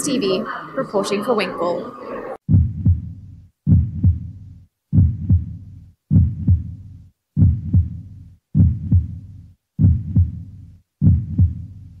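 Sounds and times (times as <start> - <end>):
heartbeat-like double thump: 2.4 - 6.8, 7.4 - 8.0, 8.6 - 9.2, 9.8 - 10.4, 11.0 - 11.7.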